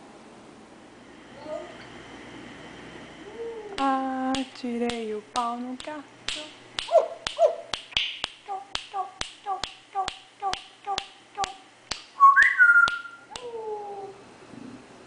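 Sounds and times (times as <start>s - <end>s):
parrot whistle: 12.2s - 13.3s.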